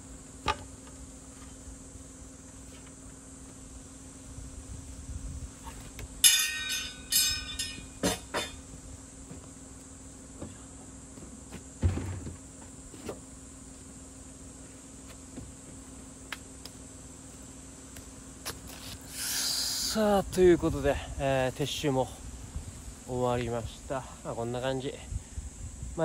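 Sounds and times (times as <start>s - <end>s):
metal frame clanking: 6.2s - 8.6s
cooler thudding on floor: 11.8s - 12.4s.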